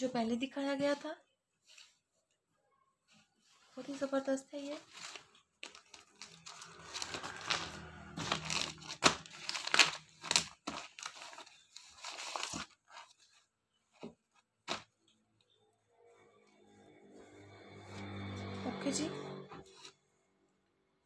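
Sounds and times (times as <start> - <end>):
plastic bag crinkling: 3.1 - 13.8.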